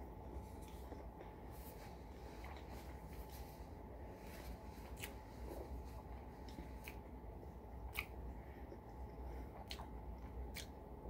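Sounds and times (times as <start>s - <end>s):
low steady hum: 0.0s - 11.0s
wet mouth chewing clicks: 7.9s - 8.2s, 9.6s - 10.8s.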